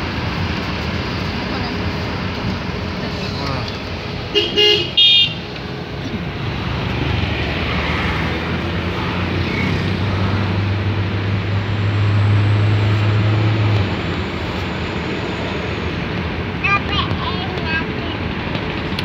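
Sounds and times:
road noise inside car: 0.0s - 19.0s.

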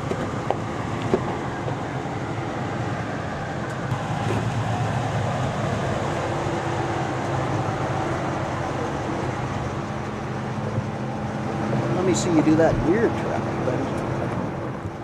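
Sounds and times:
truck engine running at low speed: 0.0s - 15.0s.

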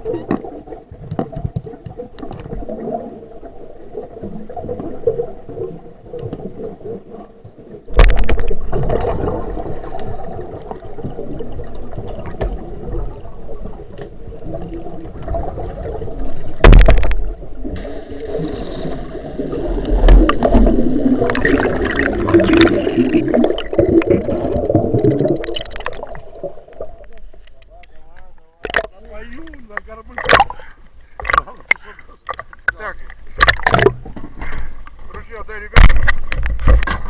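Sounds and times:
muffled water gurgling and rushing: 0.0s - 27.6s, 28.6s - 35.1s.

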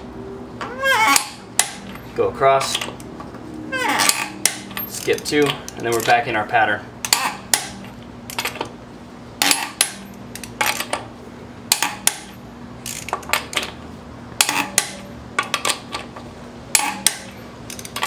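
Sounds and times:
torque wrench clicking: 11.7s - 13.2s, 16.7s - 18.0s.

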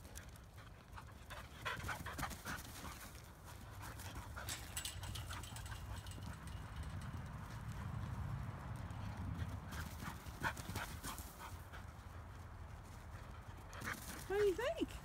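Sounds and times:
clicks and rustles: 0.0s - 11.4s
dog panting: 0.1s - 6.2s.

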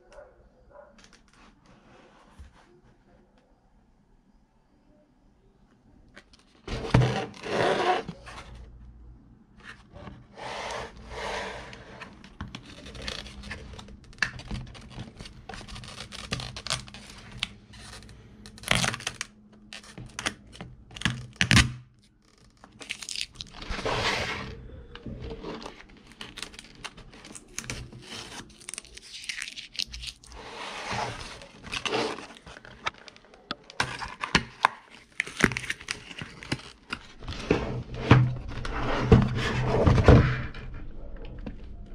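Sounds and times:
rustling of card and plastic: 12.1s - 21.4s, 22.0s - 24.6s, 25.2s - 37.5s
packaging clicks and snaps: 31.4s - 37.1s.

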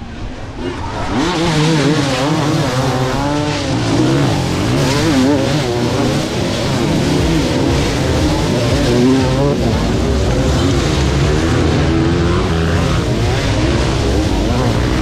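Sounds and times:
motorcycle engines revving: 0.0s - 15.0s.

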